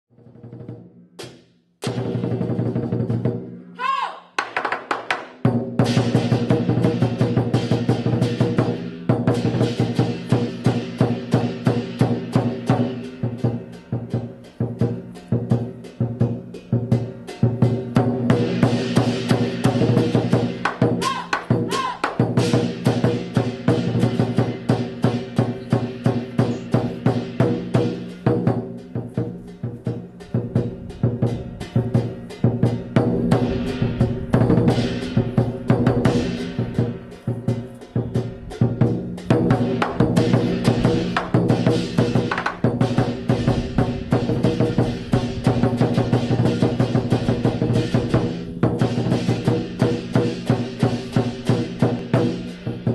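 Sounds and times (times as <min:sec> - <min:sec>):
drum beating quick strokes: 0:04.4 - 0:52.9
bright crashing cymbals: 0:31.2 - 0:52.9.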